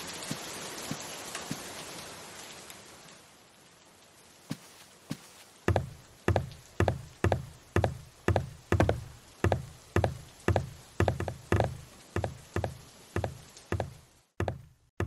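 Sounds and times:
footsteps on staircase: 4.5s - 15.0s.

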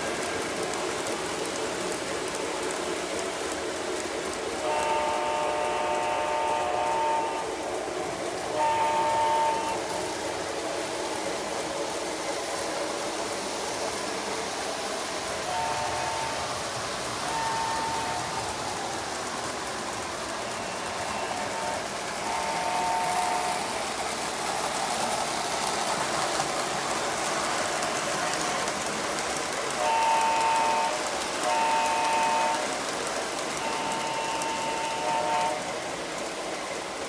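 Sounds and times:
toy trains running on track: 0.0s - 37.0s
electronic diesel horn: 8.6s - 9.8s, 33.6s - 35.6s.

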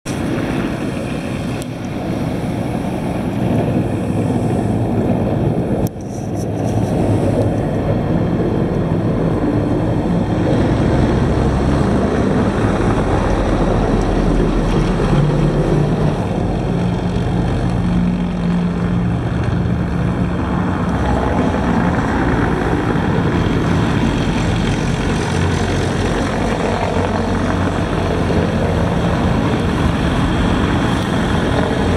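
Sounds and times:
traffic noise: 0.0s - 31.9s
truck diesel engine passing: 6.9s - 31.9s.

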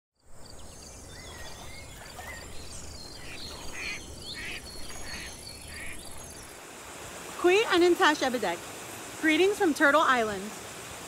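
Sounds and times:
harsh raspy bird calls: 1.2s - 6.2s.

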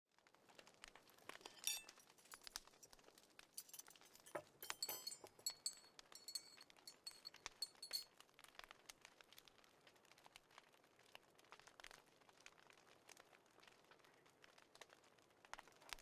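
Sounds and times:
dishes and glassware clinking: 1.4s - 2.1s, 3.6s - 8.1s.

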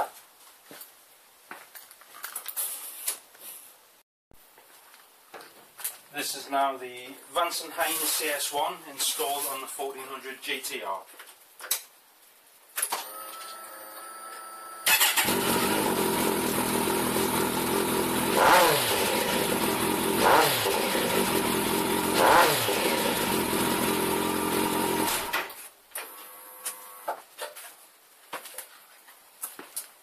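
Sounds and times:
starter whine: 13.0s - 27.1s
motorcycle engine revving: 14.8s - 25.4s
motorcycle engine idling: 15.2s - 25.0s.

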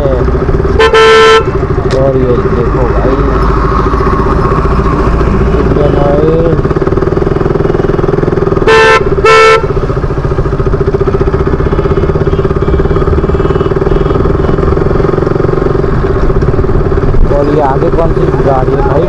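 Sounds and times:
motorcycle engine running: 0.0s - 19.0s
vehicle horn honking: 0.7s - 1.6s, 8.6s - 9.8s, 11.9s - 14.6s.

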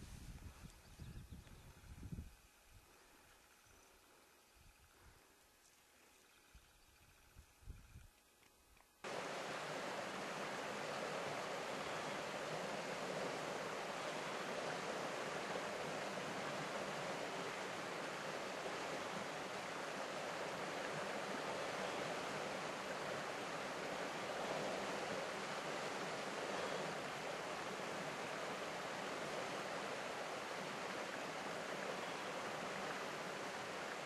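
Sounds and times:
steady rushing noise: 9.1s - 15.9s.

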